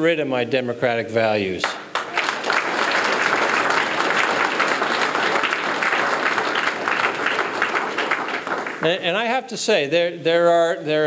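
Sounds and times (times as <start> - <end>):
audience applauding: 1.9 - 9.2.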